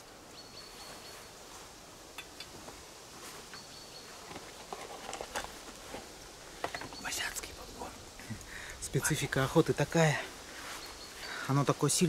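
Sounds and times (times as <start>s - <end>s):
small clicks and rustles: 2.1s - 7.5s.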